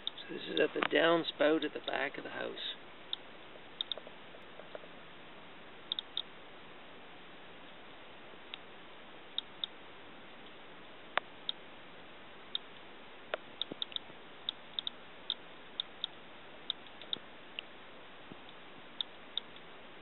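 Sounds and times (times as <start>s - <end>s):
geiger counter clicking: 3.8s - 4.0s, 5.9s - 6.3s, 12.5s - 17.7s.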